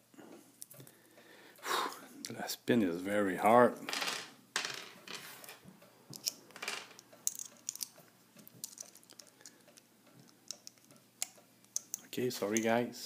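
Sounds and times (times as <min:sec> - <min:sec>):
small metallic clicks: 0:06.1 - 0:12.7.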